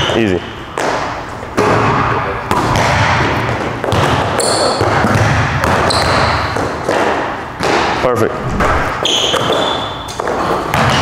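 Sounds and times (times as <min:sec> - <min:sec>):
sneaker squeaks: 0:04.4 - 0:04.8, 0:05.8 - 0:06.6, 0:09.0 - 0:11.0
basketball bouncing on hardwood floor: 0:10.7 - 0:11.0.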